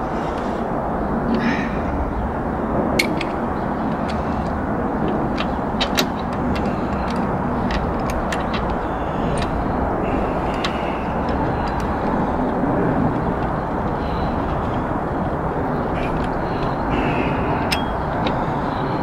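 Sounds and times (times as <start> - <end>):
steady background rumble: 0.0 - 19.0
socket wrench clicking: 3.0 - 9.7, 17.7 - 18.5.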